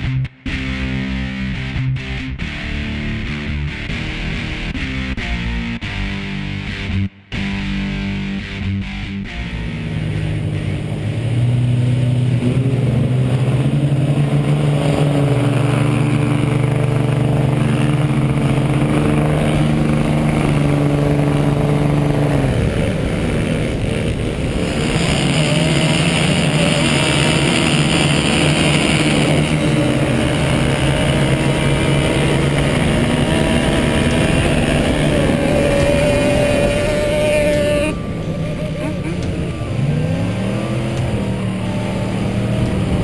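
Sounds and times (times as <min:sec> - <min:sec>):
diesel truck engine drone: 0:00.0 - 0:43.0
truck engine with hiss: 0:09.9 - 0:43.0.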